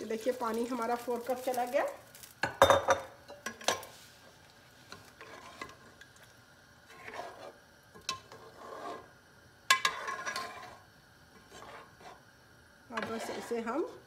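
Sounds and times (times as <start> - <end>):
spoon swishing liquid in pot: 3.9 - 9.1, 9.7 - 12.3, 12.9 - 14.0.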